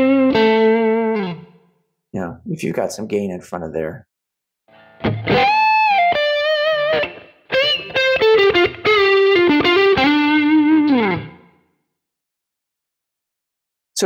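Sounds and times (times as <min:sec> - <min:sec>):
overdriven electric guitar lead: 0:00.0 - 0:01.6, 0:04.7 - 0:11.6.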